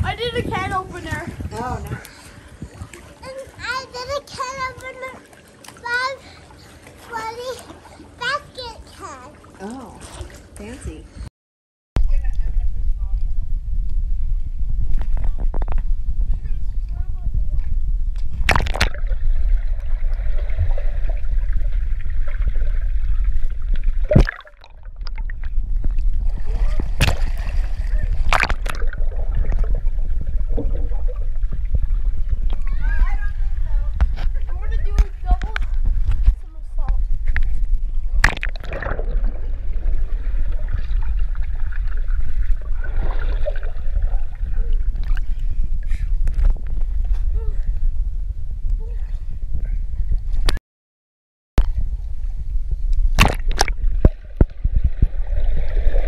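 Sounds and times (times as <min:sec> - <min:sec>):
underwater water rumble and gurgling: 0:00.0 - 0:11.2, 0:12.0 - 0:50.6, 0:51.6 - 0:56.0
loud splash: 0:18.4 - 0:32.0, 0:38.2 - 0:44.2, 0:53.2 - 0:56.0.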